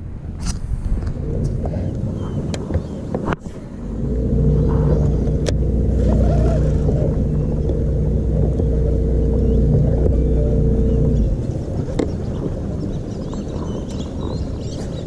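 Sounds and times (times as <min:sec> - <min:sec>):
electric motor humming and whining: 0:01.0 - 0:14.5.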